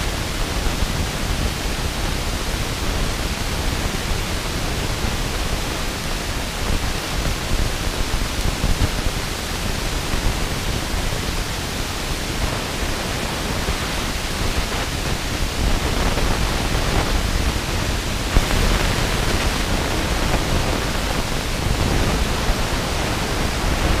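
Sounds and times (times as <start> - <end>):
wind rushing over microphone: 0.0 - 24.0.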